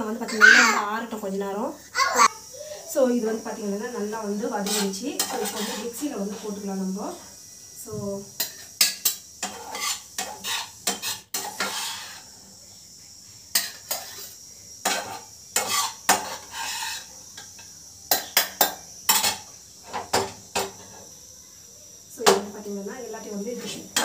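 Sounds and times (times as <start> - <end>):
metal spoon scraping a pan: 4.6 - 6.6, 8.4 - 12.3, 13.5 - 21.0.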